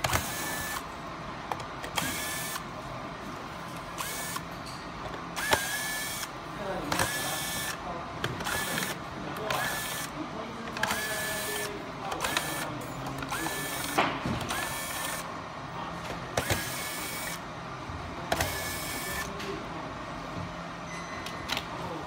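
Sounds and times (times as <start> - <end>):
electric screwdriver whining: 0.0 - 0.8, 1.9 - 2.6, 4.0 - 4.4, 5.4 - 6.3, 8.4 - 9.0, 13.3 - 15.2, 16.4 - 17.4.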